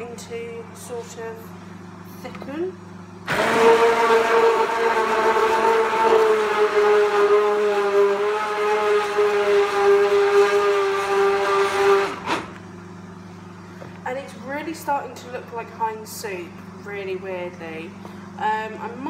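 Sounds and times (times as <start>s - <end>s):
stick blender motor whine: 3.3s - 12.7s.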